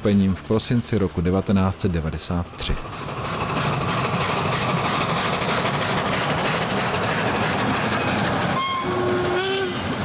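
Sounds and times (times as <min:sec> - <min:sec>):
steam locomotive exhaust beats: 0:00.0 - 0:10.0
train wheels running: 0:00.0 - 0:10.0
steam locomotive whistle: 0:08.5 - 0:09.9.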